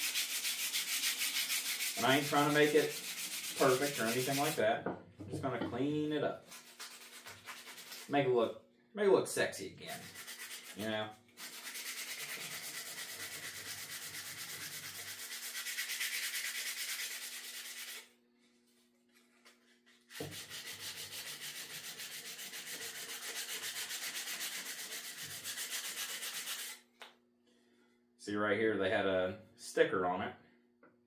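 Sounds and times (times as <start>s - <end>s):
emery cloth rubbing wood: 0.0s - 4.6s.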